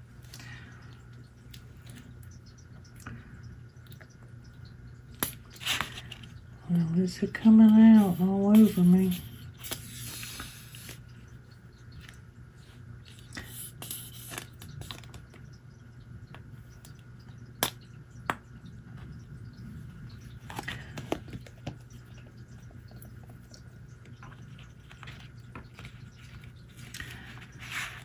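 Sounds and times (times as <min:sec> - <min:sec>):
low steady hum: 0:00.0 - 0:28.0
small clicks taps and rustles: 0:14.2 - 0:28.0.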